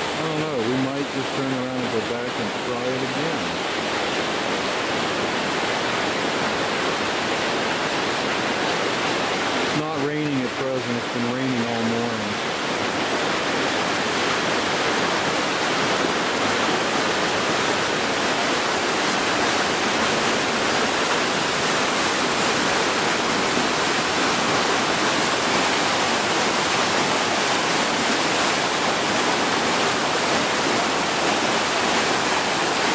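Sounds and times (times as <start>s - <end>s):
river rushing over rocks: 0.0s - 32.9s.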